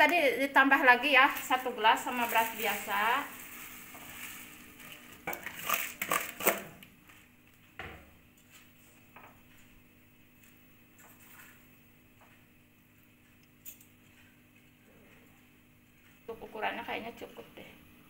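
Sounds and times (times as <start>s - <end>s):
rice grains pouring: 2.3s - 5.2s.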